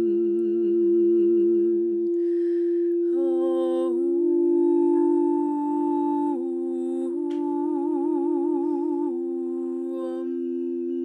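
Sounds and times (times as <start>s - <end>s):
woman toning wordless notes: 0.0s - 11.0s
woman breathing in: 2.1s - 3.1s.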